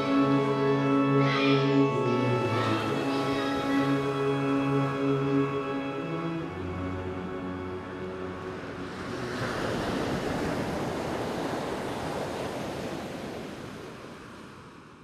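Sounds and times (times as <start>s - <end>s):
song ending: 0.0s - 9.4s
rushing surf-like noise: 0.0s - 15.0s.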